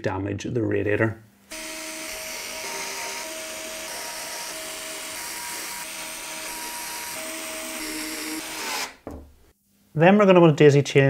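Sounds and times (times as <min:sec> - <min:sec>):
electric screwdriver running: 0:01.5 - 0:09.0.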